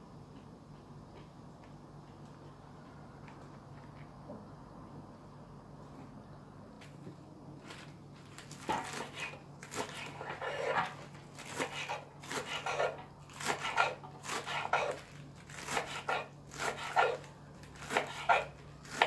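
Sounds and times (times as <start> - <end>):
knife chopping lettuce on board: 8.6 - 19.0.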